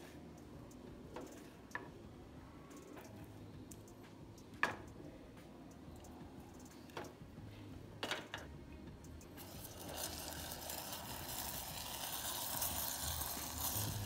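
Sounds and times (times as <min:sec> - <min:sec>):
sugar sizzling in hot milk: 0:09.4 - 0:14.0.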